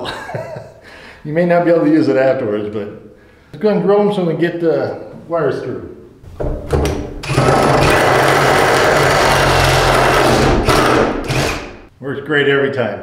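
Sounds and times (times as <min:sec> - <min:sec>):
impact driver hammering: 0:06.7 - 0:11.9.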